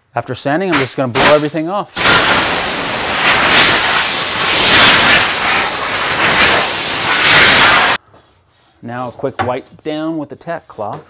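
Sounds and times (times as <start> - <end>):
compressed air hissing: 0.7 - 8.0.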